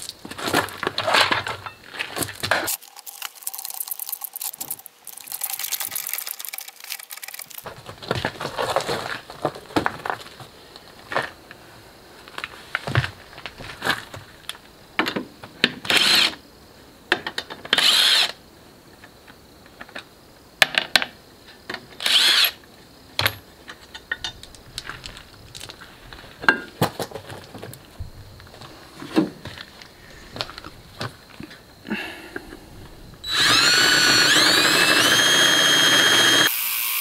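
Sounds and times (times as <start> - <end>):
knocks and clatter of tools: 23.2 - 25.8, 26.4 - 27.8
cordless power tool bursts: 33.2 - 37.0.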